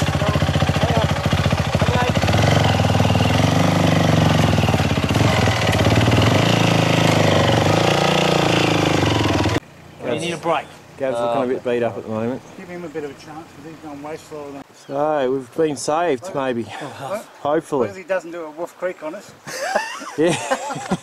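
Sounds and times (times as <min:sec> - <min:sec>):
motorbike engine running at low revs: 0:00.0 - 0:09.6.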